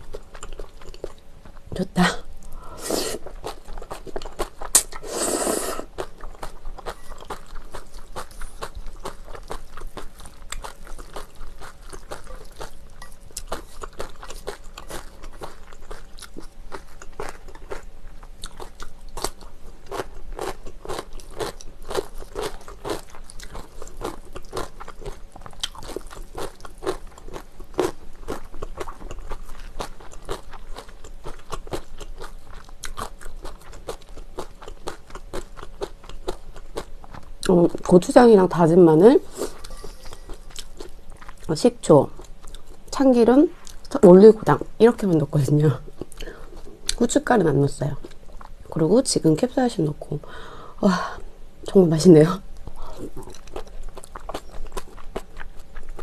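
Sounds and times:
crunchy chewing with mouth clicks: 0:00.0 - 0:01.7, 0:02.3 - 0:38.2, 0:39.2 - 0:44.0, 0:45.8 - 0:47.2, 0:52.5 - 0:56.0
slurping noodles: 0:02.8 - 0:03.3, 0:04.8 - 0:05.9.

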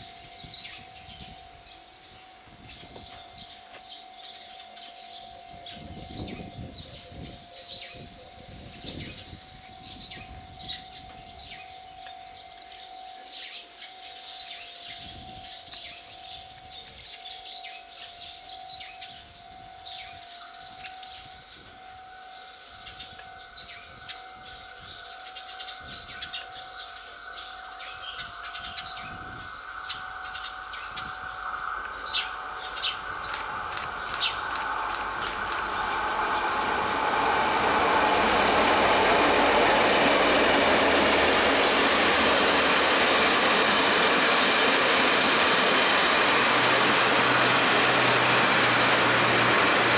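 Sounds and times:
birds chirping: 0:00.0 - 0:49.9
diesel train approaching: 0:03.1 - 0:49.9
steady tone: 0:19.1 - 0:49.9.

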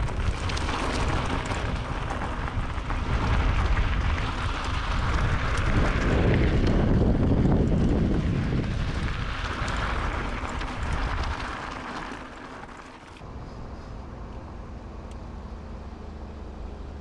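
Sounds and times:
wind on microphone: 0:00.0 - 0:11.9
bicycle road noise: 0:00.0 - 0:17.0.

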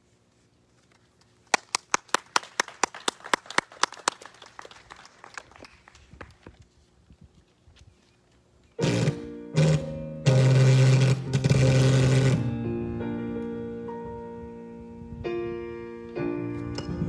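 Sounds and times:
people clapping: 0:01.4 - 0:06.4.

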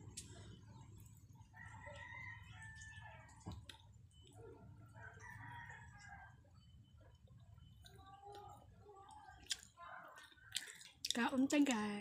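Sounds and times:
faint rooster crowing: 0:01.4 - 0:03.7, 0:04.3 - 0:07.2.

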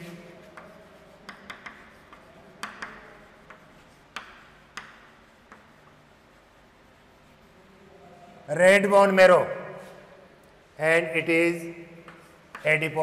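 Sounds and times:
chalk tapping on chalkboard: 0:00.0 - 0:07.5, 0:11.9 - 0:13.0
chalk scraping: 0:00.0 - 0:08.0, 0:11.7 - 0:13.0.

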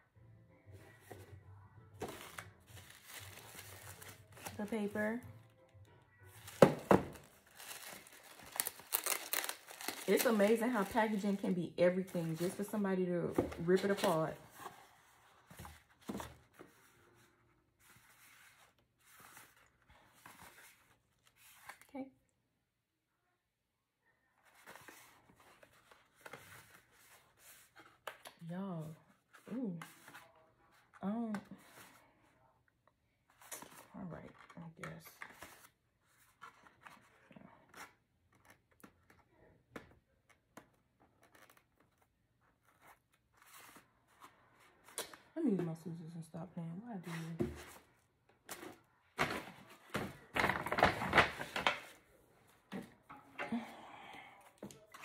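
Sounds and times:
cardboard box rustling: 0:02.0 - 0:05.1, 0:06.4 - 0:11.2.

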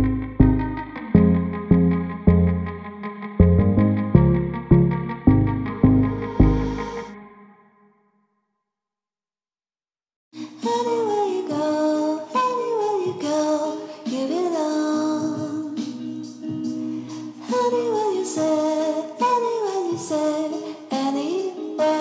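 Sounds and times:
melodic line with held tones: 0:03.4 - 0:07.1.

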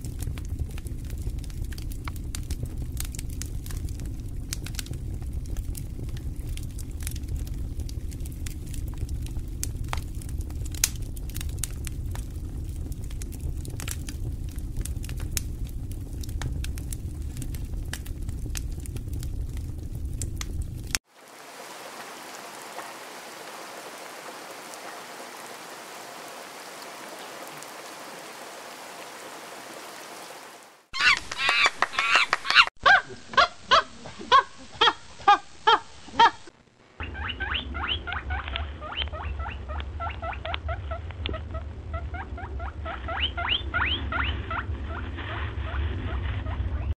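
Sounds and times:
low rumble: 0:00.0 - 0:21.0, 0:40.8 - 0:46.9
steady hiss: 0:00.0 - 0:37.1
loud repeated animal calls: 0:31.0 - 0:46.2
quiet chattering animal calls: 0:37.0 - 0:46.3.

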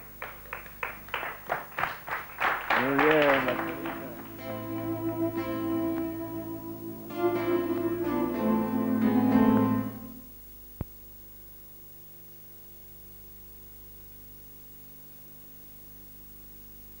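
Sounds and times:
faint steady hum: 0:00.0 - 0:17.0
acoustic guitar chord: 0:02.8 - 0:10.3.

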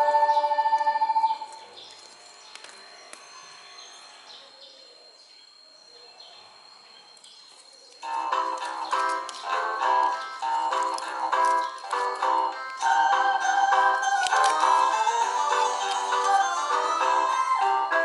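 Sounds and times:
background music: 0:00.0 - 0:01.6, 0:08.0 - 0:18.0
fingers handling paper cards: 0:07.9 - 0:12.9, 0:14.0 - 0:16.5.

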